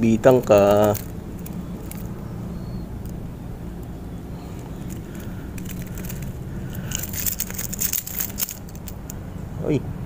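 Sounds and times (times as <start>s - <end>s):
clicks and rattles of fishing lure: 0.4s - 2.2s, 4.5s - 9.2s.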